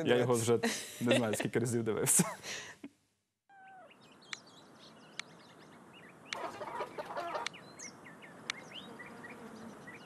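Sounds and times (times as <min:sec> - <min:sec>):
small birds chirping: 0:03.5 - 0:10.0
hens clucking: 0:06.3 - 0:07.6.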